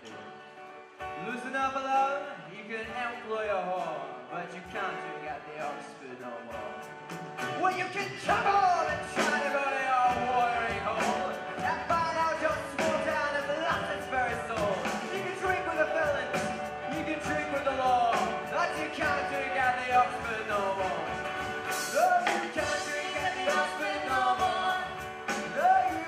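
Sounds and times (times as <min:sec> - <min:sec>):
folk-rock band playing: 0:00.0 - 0:26.0
drums hitting: 0:07.1 - 0:26.0
person singing: 0:07.4 - 0:26.0.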